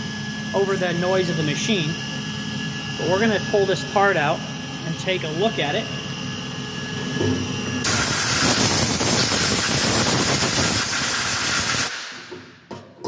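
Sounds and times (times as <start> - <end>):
compressed air blow gun hissing: 7.8 - 12.2.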